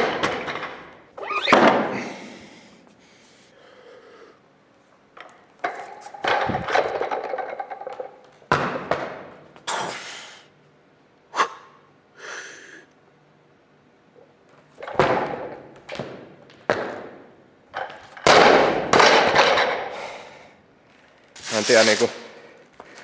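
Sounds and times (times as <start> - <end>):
barbell dropped with heavy thud: 18.2 - 19.9.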